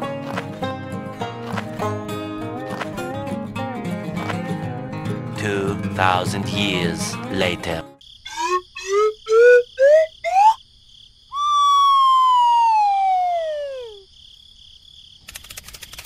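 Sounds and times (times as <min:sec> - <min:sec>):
descending slide whistle: 0:08.3 - 0:10.6, 0:11.3 - 0:14.0
rising cartoon bloops: 0:08.3 - 0:10.6, 0:11.3 - 0:14.1.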